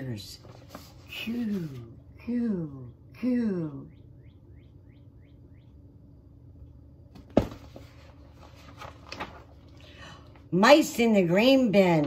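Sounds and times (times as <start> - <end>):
rustling of handling: 0.4 - 1.8, 7.3 - 9.8
faint high chirps: 2.7 - 6.2
book knocking on surface: 7.1 - 7.9.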